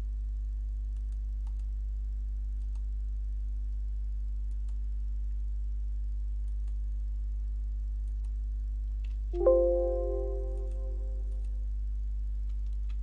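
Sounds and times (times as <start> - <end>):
low electrical hum: 0.0 - 13.0
computer mouse clicks: 1.0 - 1.7.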